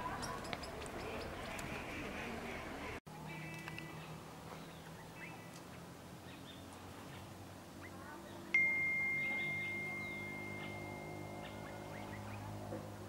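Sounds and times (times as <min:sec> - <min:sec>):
low steady hum: 0:00.0 - 0:13.0
faint bird chirps: 0:06.2 - 0:12.6
chime ringing: 0:08.6 - 0:12.7.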